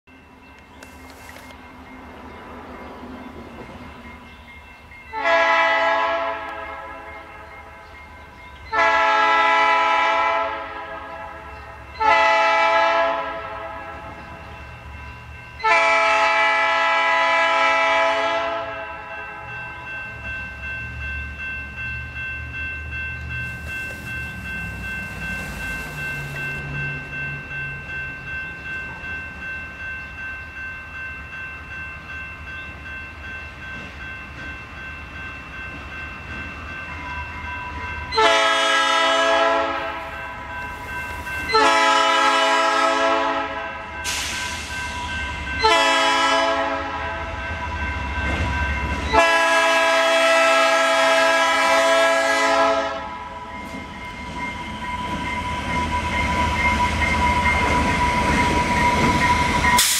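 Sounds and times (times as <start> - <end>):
diesel locomotive engine rumble: 0.1 - 59.9
locomotive air horn blasts: 5.1 - 7.0, 8.7 - 14.0, 15.6 - 19.0, 38.2 - 40.0, 41.5 - 43.7, 45.6 - 47.2, 49.1 - 53.2
warning bell ringing: 19.0 - 42.8, 53.1 - 59.9.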